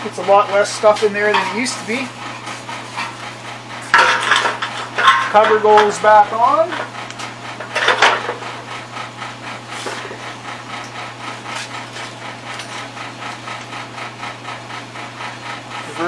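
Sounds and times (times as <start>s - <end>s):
steady hum: 0.0s - 16.0s
sheet metal cover clattering: 3.9s - 6.0s.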